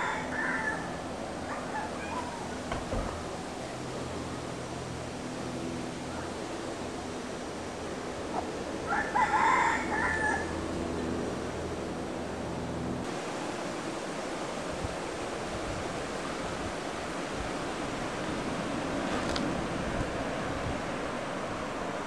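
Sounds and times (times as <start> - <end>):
rooster crowing: 0.0 - 2.4, 8.8 - 10.8
steady outdoor hiss: 0.0 - 22.0.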